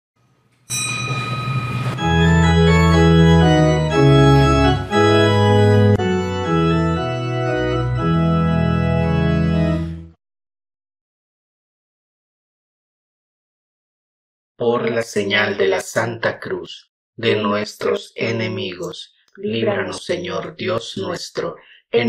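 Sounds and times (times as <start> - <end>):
instrumental music: 1.7 - 10.2.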